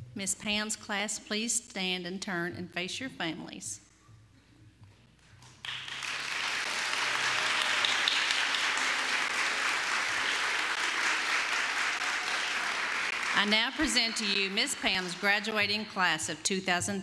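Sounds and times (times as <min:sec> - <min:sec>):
audience applause: 0:05.6 - 0:15.5.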